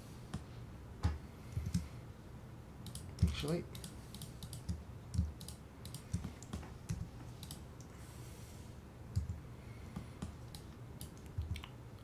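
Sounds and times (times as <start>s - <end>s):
mouse and keyboard clicks: 2.8s - 7.6s.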